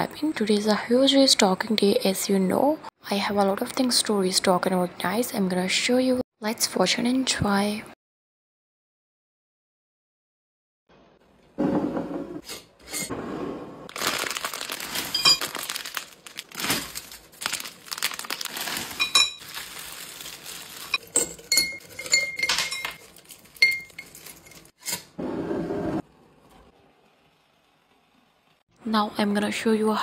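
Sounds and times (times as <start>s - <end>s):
wrapped sweets crinkling and clattering: 13.9s - 24.8s
glass jars clinking: 15.0s - 15.7s, 18.9s - 24.7s.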